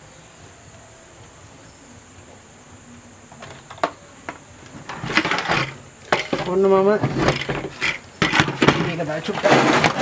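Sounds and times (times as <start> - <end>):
faint high whine: 0.0 - 7.0
background hiss: 0.0 - 10.0.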